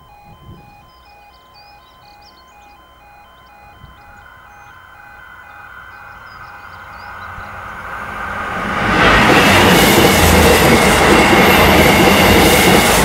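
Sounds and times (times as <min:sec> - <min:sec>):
level crossing two-tone alarm: 0:00.0 - 0:07.7, 0:09.4 - 0:13.0
birds chirping: 0:00.0 - 0:08.1
train rumble: 0:00.0 - 0:13.0.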